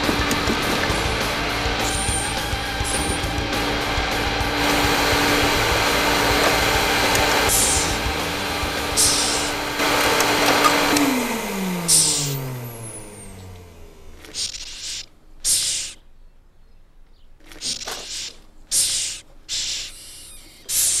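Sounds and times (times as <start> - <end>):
vacuum cleaner running: 0.0 - 14.2
vacuum motor winding down: 0.0 - 15.0.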